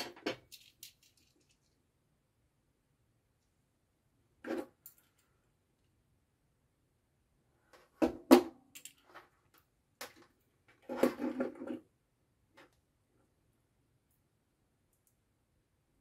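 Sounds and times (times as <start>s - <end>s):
clatter of parts and wires: 0.0s - 1.9s, 4.4s - 6.0s, 8.6s - 11.9s.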